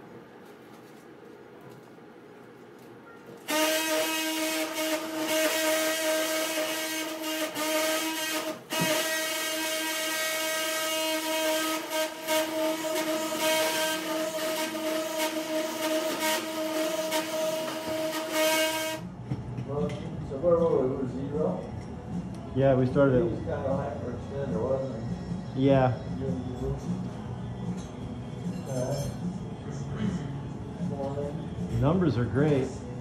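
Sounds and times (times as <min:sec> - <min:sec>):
bone saw high whine: 0:03.5 - 0:19.0.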